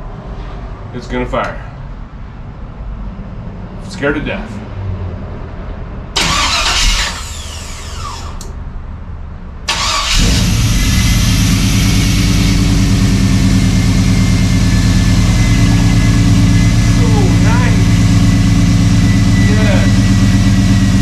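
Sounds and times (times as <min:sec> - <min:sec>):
engine cranking and idling: 0:06.2 - 0:08.6, 0:09.7 - 0:21.0.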